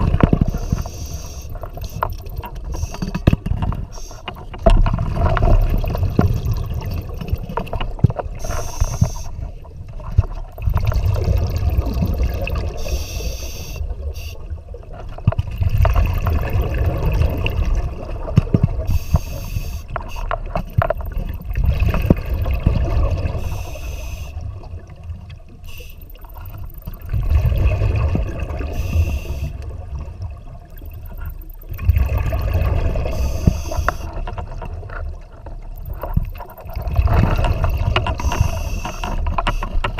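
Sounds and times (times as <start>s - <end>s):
exhaled bubbles rumbling: 0.0s - 39.9s
regulator inhalation hiss: 0.6s - 1.6s, 8.4s - 9.3s, 12.8s - 14.5s, 18.9s - 20.3s, 23.4s - 24.4s, 28.7s - 29.6s, 38.2s - 39.8s.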